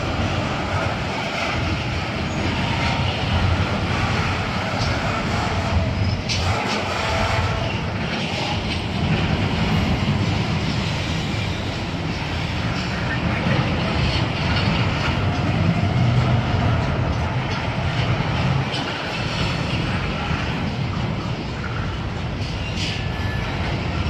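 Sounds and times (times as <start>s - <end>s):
train wheels rolling on rails: 0.0s - 24.0s.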